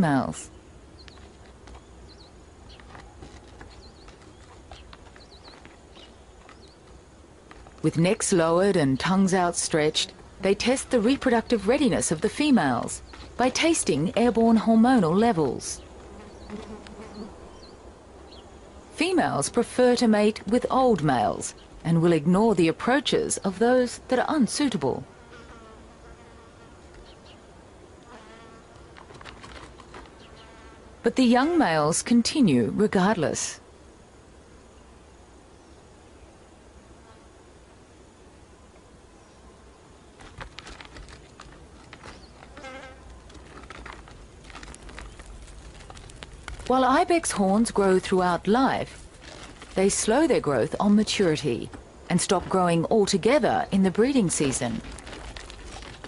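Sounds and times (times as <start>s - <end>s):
small birds chirping: 0.0s - 24.8s, 26.9s - 27.5s, 29.7s - 30.6s, 41.3s - 43.3s
flying insects buzzing: 0.5s - 20.1s, 24.3s - 31.9s, 33.6s - 46.8s
fly passing: 16.0s - 18.4s, 25.0s - 27.0s, 28.0s - 28.9s, 42.2s - 43.1s.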